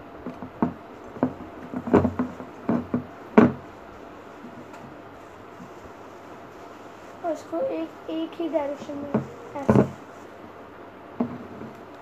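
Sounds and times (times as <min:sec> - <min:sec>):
tissue paper rustling: 0:03.9 - 0:10.4.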